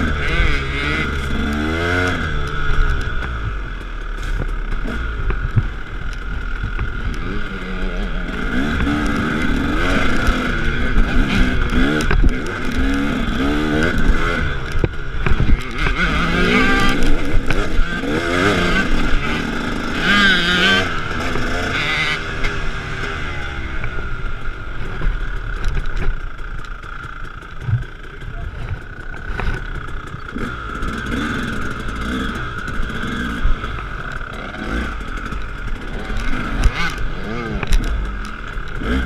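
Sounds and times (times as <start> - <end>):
dirt bike engine revving: 0.0 - 39.0
knocks from bumps: 27.6 - 28.0.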